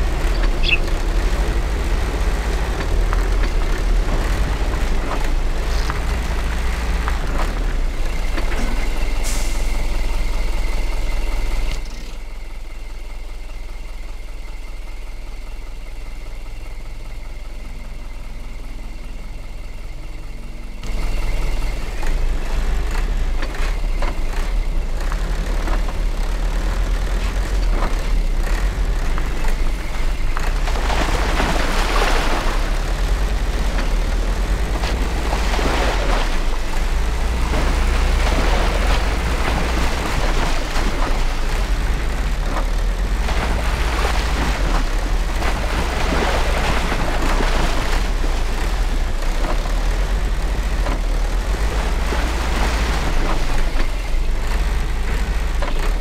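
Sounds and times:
diesel truck engine rumbling: 0.0 - 56.0.

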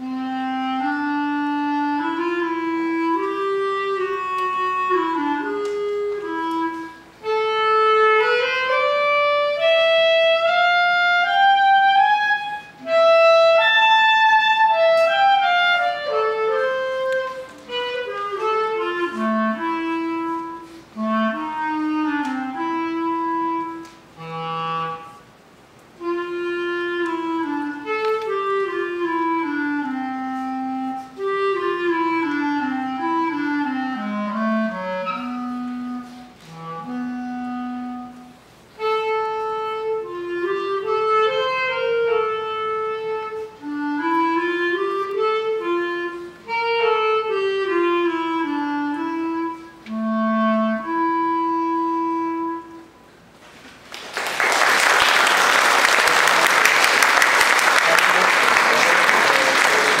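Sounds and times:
solo clarinet: 0.0 - 53.8
audience applause: 53.8 - 60.0.

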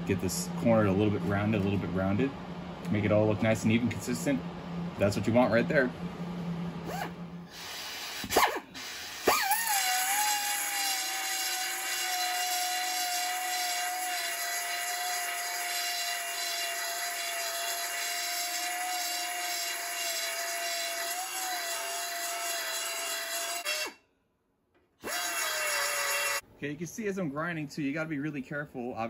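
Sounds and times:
belt sander grinding metal: 9.2 - 24.0, 25.0 - 26.4.

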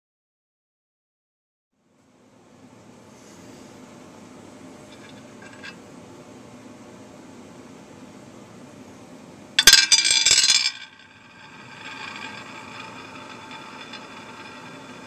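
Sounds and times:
spinning top whirring: 9.6 - 15.0.

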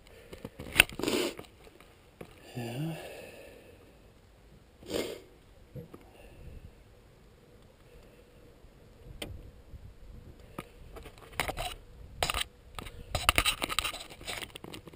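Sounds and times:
gear clattering and scraping: 11.0 - 14.9.

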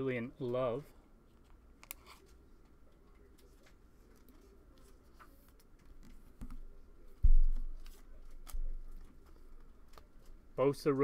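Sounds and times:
cards and plastic sleeve rustling: 7.4 - 10.5.

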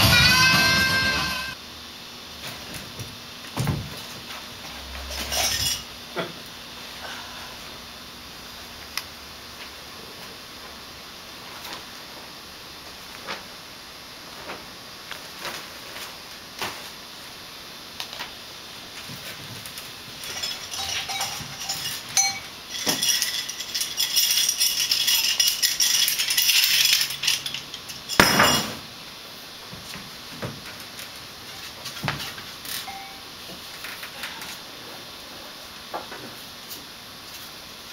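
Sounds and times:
metallic clinking and jingling: 20.2 - 28.7.

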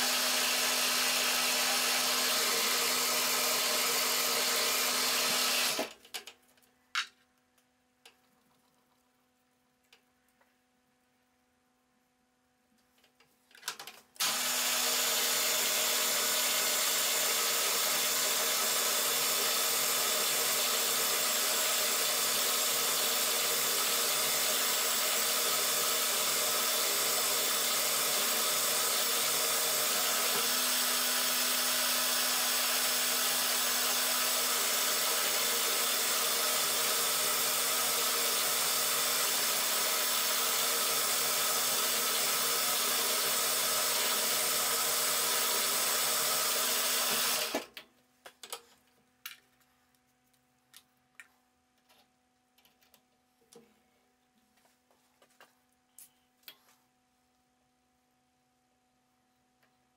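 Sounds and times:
drill bit boring into metal: 0.0 - 5.9, 14.2 - 47.6
milling machine spindle running: 0.0 - 5.9, 14.2 - 47.6.

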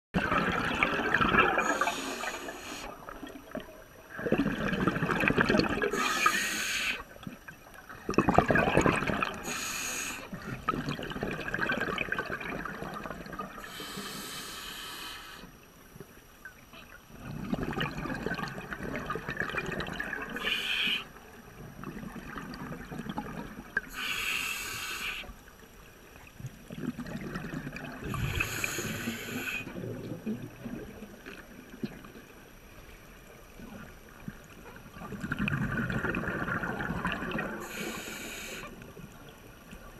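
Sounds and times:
bubbling exhalations: 0.2 - 3.3, 4.1 - 6.2, 8.0 - 9.5, 26.7 - 31.0, 35.0 - 37.8
diver breathing through regulator: 1.6 - 3.0, 5.9 - 7.1, 9.4 - 10.3, 13.6 - 15.5, 20.4 - 21.1, 23.9 - 25.4, 28.0 - 29.8, 37.6 - 38.7.

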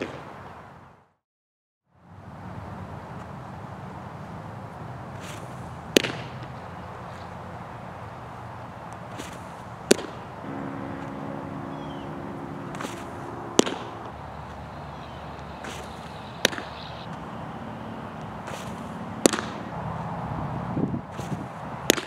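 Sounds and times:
baseballs smacking into mitt: 5.9 - 6.4, 18.5 - 19.6, 21.2 - 22.0.

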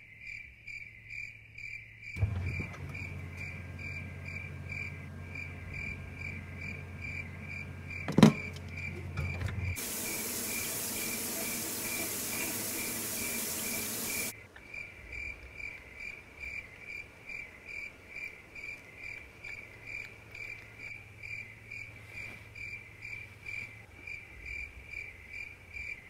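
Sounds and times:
cricket chirping: 0.0 - 26.0
loud rushing hiss: 9.8 - 14.3.

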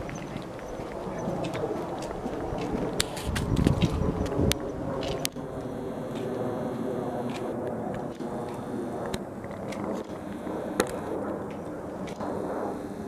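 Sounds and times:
loudspeaker static hiss: 5.6 - 7.6, 8.2 - 9.4, 10.1 - 11.2, 12.3 - 13.0.

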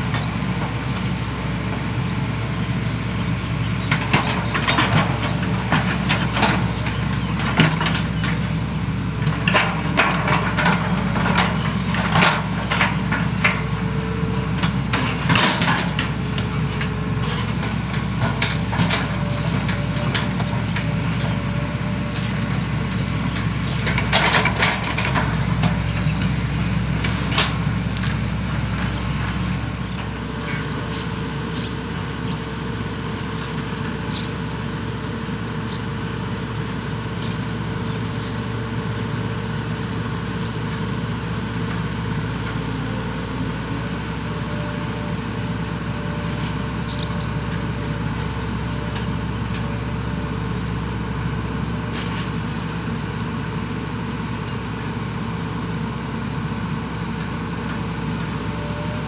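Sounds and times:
diesel engines running: 0.0 - 59.0
machinery clanking and knocking: 3.4 - 31.6.

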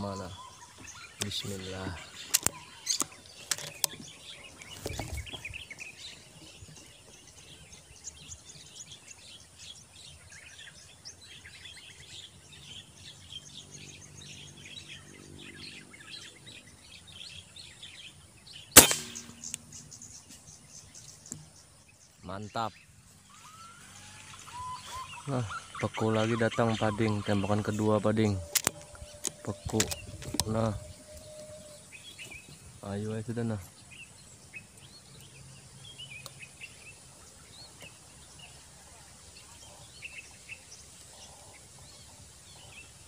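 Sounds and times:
birds chirping: 0.0 - 43.0
air rifle firing: 18.8 - 19.6
sharp clicks: 18.8 - 19.7.

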